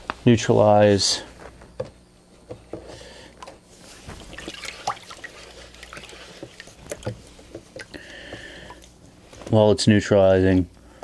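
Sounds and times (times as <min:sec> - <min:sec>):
water splashing in plastic tub: 0:04.1 - 0:08.0.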